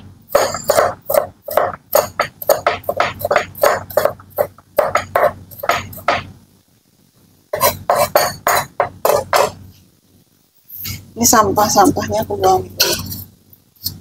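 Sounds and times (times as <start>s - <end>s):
knife chopping on cutting board: 0.4s - 6.3s, 7.6s - 9.6s.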